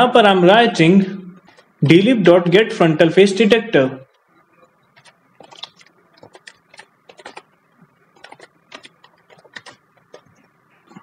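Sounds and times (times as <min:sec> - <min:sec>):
typing on computer keyboard: 0:05.0 - 0:07.5, 0:08.1 - 0:10.4.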